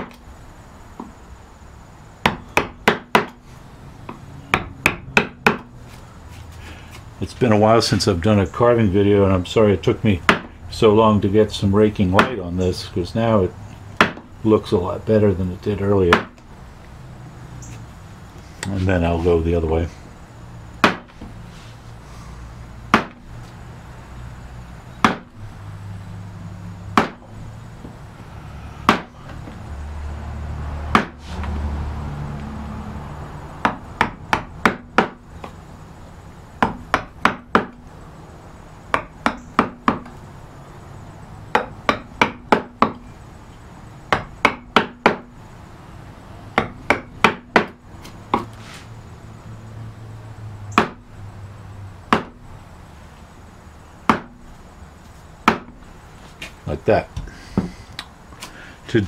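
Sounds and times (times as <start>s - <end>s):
mallet striking a gouge: 2.2s - 3.4s, 4.1s - 5.7s, 10.3s - 10.5s, 14.0s - 14.3s, 16.1s - 16.4s, 20.8s - 21.1s, 22.9s - 23.2s, 25.0s - 25.3s, 27.0s - 27.3s, 28.8s - 29.2s, 30.9s - 31.2s, 33.6s - 35.2s, 36.6s - 37.8s, 38.9s - 40.2s, 41.5s - 43.0s, 44.1s - 45.3s, 46.6s - 48.5s, 50.8s - 51.0s, 52.1s - 52.4s, 54.1s - 54.4s, 55.4s - 55.8s.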